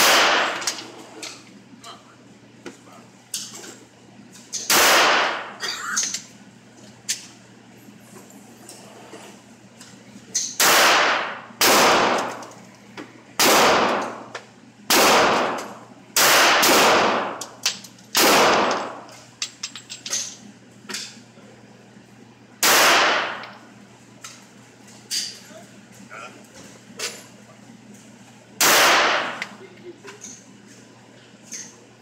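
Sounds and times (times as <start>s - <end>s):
pistol shots echoing indoors: 0.0s - 0.8s, 4.7s - 5.6s, 10.6s - 12.5s, 13.4s - 14.3s, 14.9s - 19.1s, 22.6s - 23.6s, 28.6s - 29.6s.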